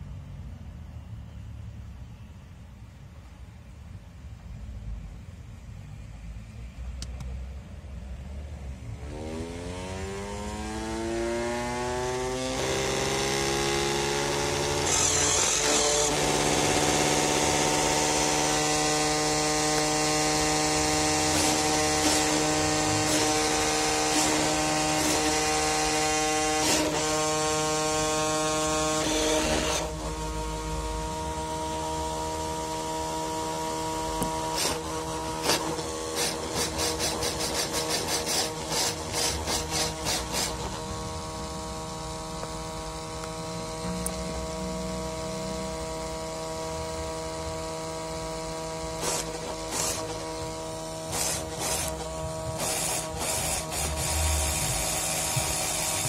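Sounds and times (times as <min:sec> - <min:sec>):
gyroscope flywheel whine: 0:09.0 - 0:56.0.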